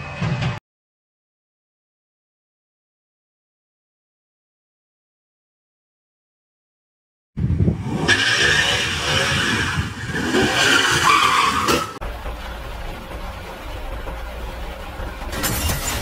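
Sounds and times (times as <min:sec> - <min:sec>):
low road rumble: 0:07.4 - 0:16.0
car tires screeching: 0:07.7 - 0:12.0
car engine revving: 0:07.7 - 0:15.9.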